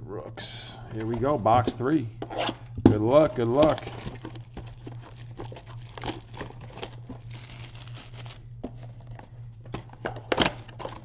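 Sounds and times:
plastic wrap crinkling and tearing: 3.1s - 8.6s.

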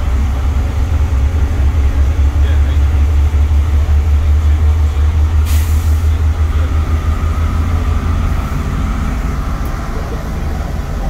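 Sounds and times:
bus diesel engine rumble: 0.0s - 11.0s
road noise: 0.0s - 11.0s
short hiss: 5.5s - 6.0s.

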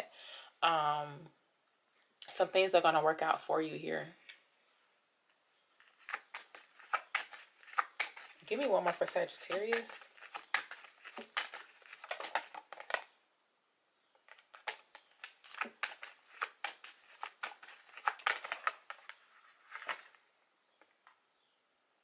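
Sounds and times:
cards being shuffled: 5.8s - 13.1s, 14.2s - 20.2s.

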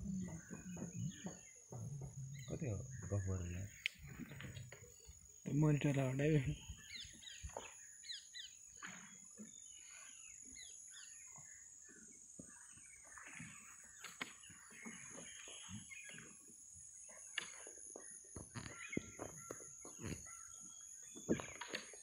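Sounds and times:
bird chirps and trills: 0.0s - 16.5s.

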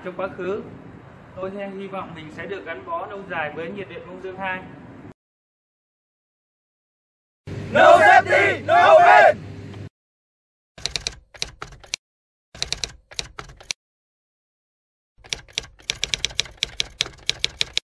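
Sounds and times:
typewriter key clacks: 10.8s - 12.0s, 12.6s - 13.8s, 15.2s - 17.8s.

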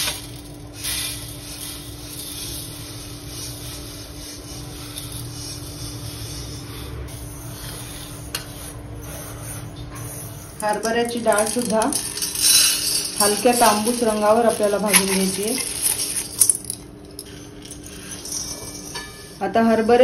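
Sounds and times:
spoon scraping through grains: 0.0s - 19.4s
rice grains pouring onto metal: 10.6s - 16.8s.

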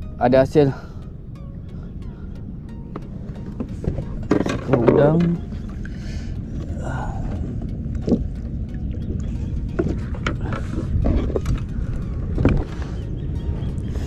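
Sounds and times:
wind and water rumble: 0.0s - 14.0s
knocks and rustles in a boat: 2.8s - 14.0s.

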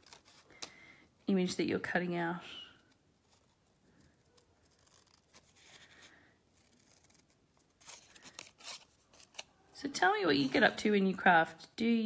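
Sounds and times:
paper snips cutting: 0.0s - 0.7s, 4.2s - 5.8s
paper rustle: 3.2s - 9.6s.

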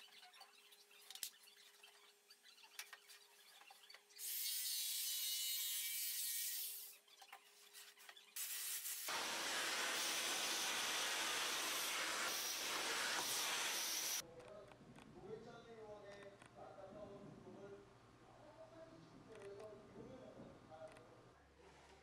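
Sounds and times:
loud hiss: 8.4s - 14.2s
shop vacuum running: 9.1s - 14.2s.

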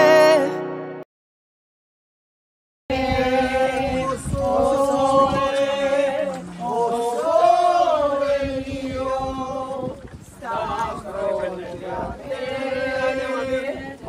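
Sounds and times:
group of voices singing: 2.9s - 14.0s.

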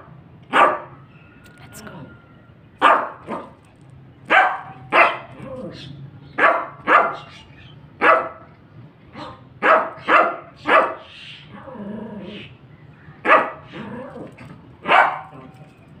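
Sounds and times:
small dog barking: 0.5s - 1.0s, 2.8s - 3.6s, 4.3s - 5.7s, 6.4s - 8.5s, 9.1s - 11.1s, 13.2s - 13.9s, 14.8s - 15.5s.

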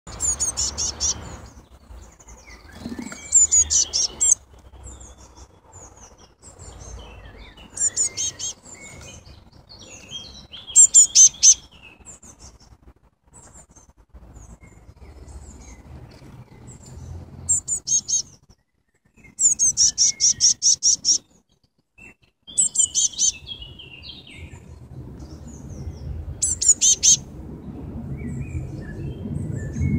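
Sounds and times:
birds chirping rapidly: 0.1s - 29.9s.

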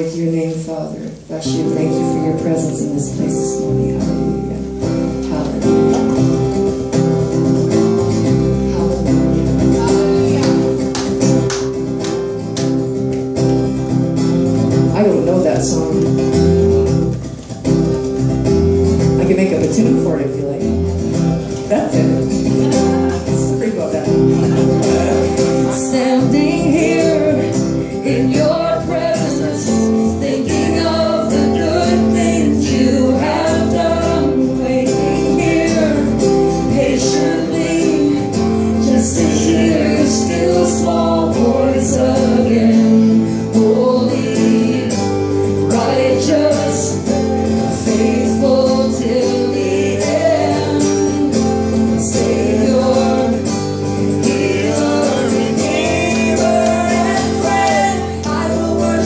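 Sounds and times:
woman singing: 0.0s - 6.2s, 24.8s - 59.0s
acoustic guitar strumming: 0.0s - 59.0s
electric bass guitar: 1.1s - 59.0s.

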